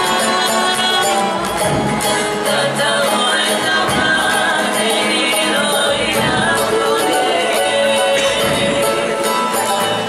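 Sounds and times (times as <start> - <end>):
group singing: 0.0 - 10.0
strummed string instruments: 0.0 - 10.0
drums beating: 1.4 - 9.2.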